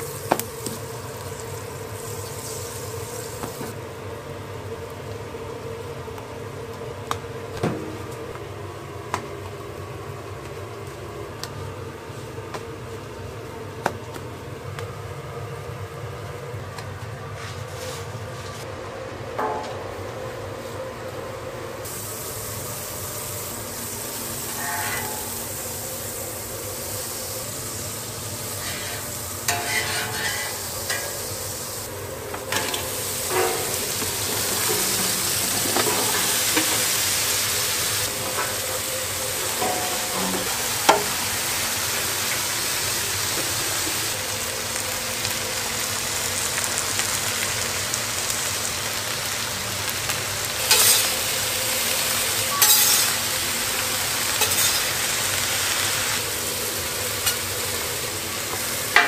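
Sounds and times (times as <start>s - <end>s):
onions sizzling on a griddle: 0.0s - 8.6s, 21.8s - 59.0s.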